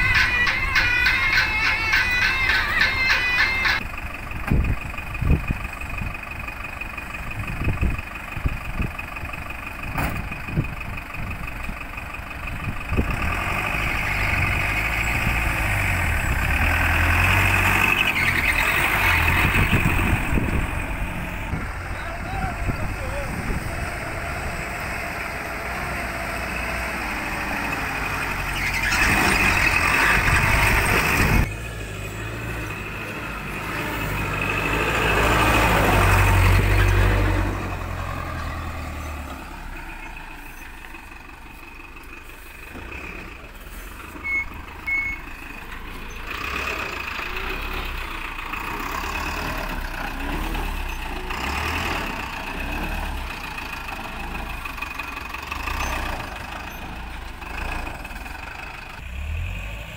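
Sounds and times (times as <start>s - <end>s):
diesel lorry engines pulling away: 0.0s - 59.9s.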